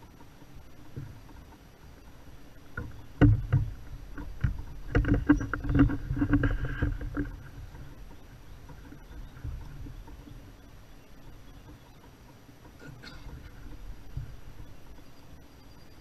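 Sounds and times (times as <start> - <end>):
hollow knocks on plastic kayak hull: 2.8 - 7.3.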